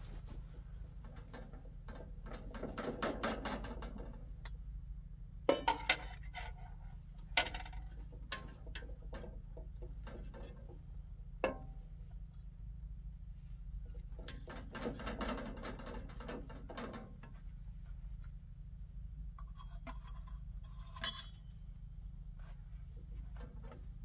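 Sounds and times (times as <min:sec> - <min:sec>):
metal spoon scraping a pot: 0:05.7 - 0:06.8, 0:19.4 - 0:21.4.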